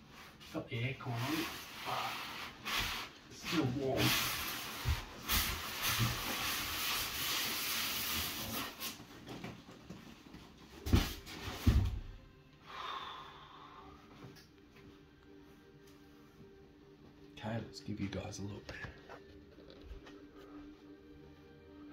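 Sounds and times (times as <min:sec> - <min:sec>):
plastic wrap and foam rustling: 0:00.0 - 0:12.2.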